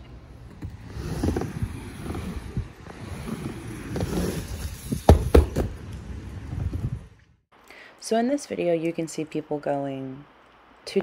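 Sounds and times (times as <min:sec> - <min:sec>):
skate wheels rolling on wooden ramp: 0:00.2 - 0:07.3.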